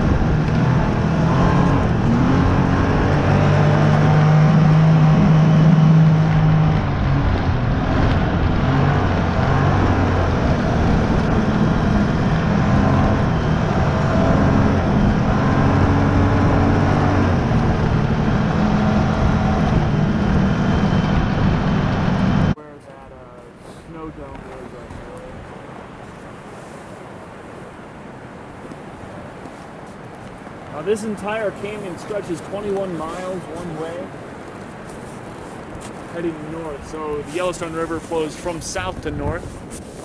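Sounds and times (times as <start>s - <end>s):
snowmobile engine running: 0.0s - 22.6s.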